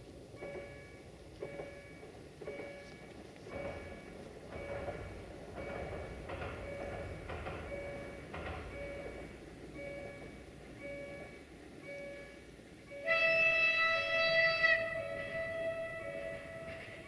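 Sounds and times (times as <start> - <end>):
train horn chord: 12.9 - 17.0.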